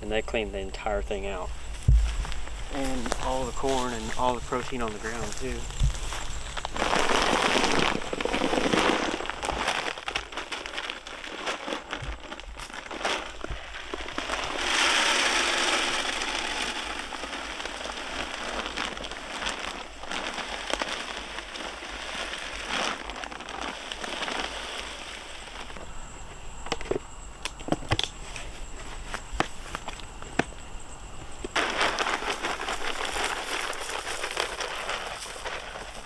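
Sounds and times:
pellets pouring rattle: 0:02.2 - 0:25.8, 0:31.5 - 0:36.0
plastic bag crinkling: 0:02.2 - 0:25.8, 0:31.6 - 0:36.0
pellets clicking: 0:02.7 - 0:25.8, 0:31.5 - 0:36.0.

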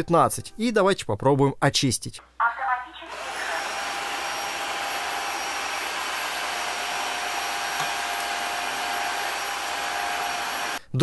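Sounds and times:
floor washer motor whining: 0:03.1 - 0:10.8.

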